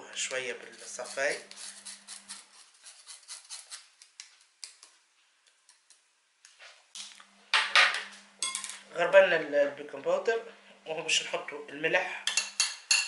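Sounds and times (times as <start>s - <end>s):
spoon scraping through mesh sieve: 0.6s - 3.9s.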